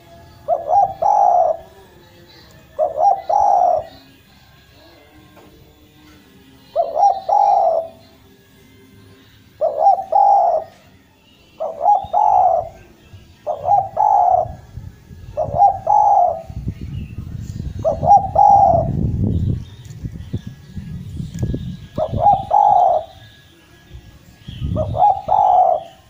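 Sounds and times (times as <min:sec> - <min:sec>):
dove cooing: 0:00.0 - 0:01.8, 0:02.6 - 0:04.2, 0:06.7 - 0:08.2, 0:09.6 - 0:10.9, 0:11.6 - 0:16.6, 0:17.8 - 0:19.0, 0:21.8 - 0:23.3, 0:24.6 - 0:26.0.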